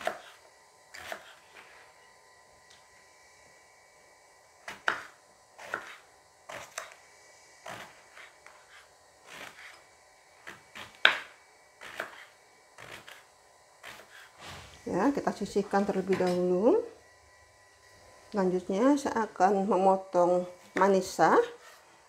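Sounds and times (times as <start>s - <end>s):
knife chopping on wooden board: 0.0s - 1.4s, 4.6s - 7.0s, 10.4s - 14.3s.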